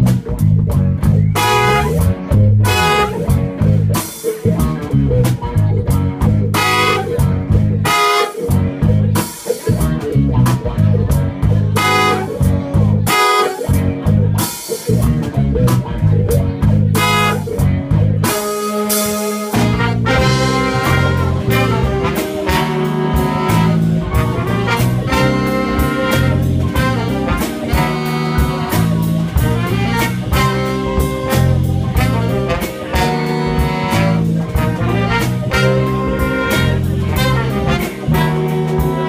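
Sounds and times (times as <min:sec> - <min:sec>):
drum kit: 0:00.0 - 0:39.0
electric bass line: 0:00.0 - 0:39.0
guitar: 0:00.0 - 0:39.0
horn section playing: 0:01.4 - 0:03.6, 0:06.5 - 0:08.6, 0:11.7 - 0:13.8, 0:17.0 - 0:17.6, 0:18.2 - 0:39.0.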